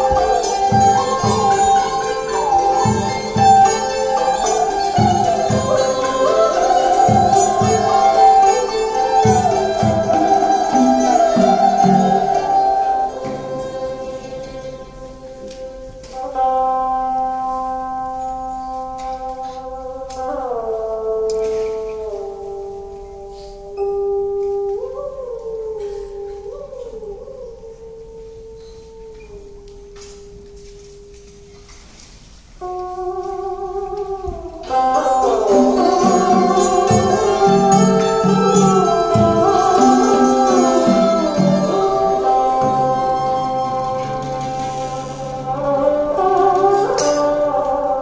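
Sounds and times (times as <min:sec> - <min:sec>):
drums: 0:00.0 - 0:16.4, 0:33.4 - 0:47.8
monochord sustained sliding note: 0:00.0 - 0:20.2, 0:32.6 - 0:48.0
plucked zither: 0:00.0 - 0:27.5, 0:28.6 - 0:48.0
bamboo flute: 0:00.0 - 0:48.0
moon lute: 0:00.0 - 0:48.0.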